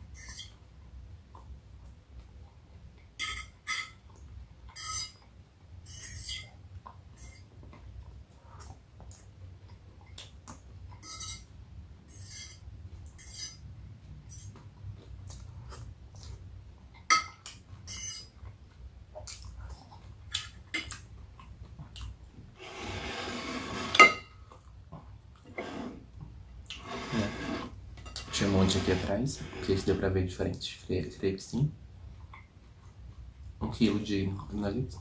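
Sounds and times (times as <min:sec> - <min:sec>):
cutlery clinking on dishes: 0:03.2 - 0:04.0, 0:11.0 - 0:11.5, 0:17.0 - 0:18.3, 0:23.8 - 0:24.4
chewing and mouth clicks: 0:14.5 - 0:22.3.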